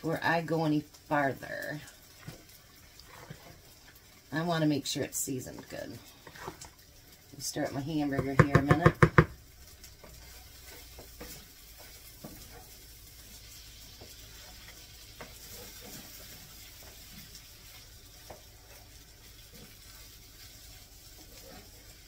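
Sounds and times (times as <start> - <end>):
meat sizzling in a skillet: 0.0 - 22.0
wooden spoon scraping a pan: 2.1 - 4.1, 5.5 - 6.8, 9.7 - 22.0.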